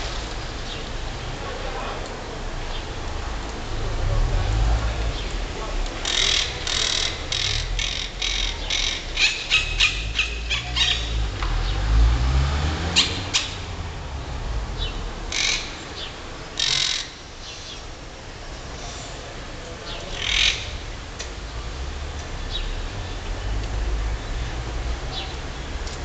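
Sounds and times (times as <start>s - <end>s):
parakeets calling: 6.0s - 11.2s, 14.8s - 17.8s.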